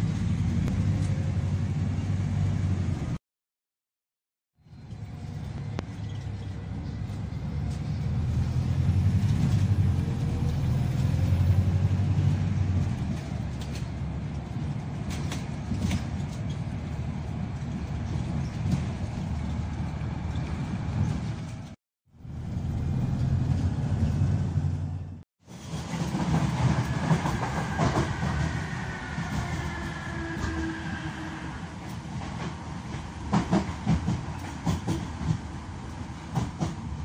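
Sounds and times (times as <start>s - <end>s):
bus engine rumble: 0.0s - 3.2s, 4.6s - 25.2s.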